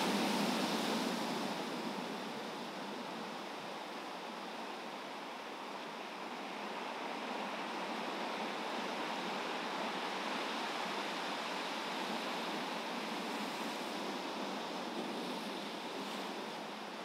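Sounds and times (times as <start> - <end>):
ocean waves breaking: 0.0 - 4.4.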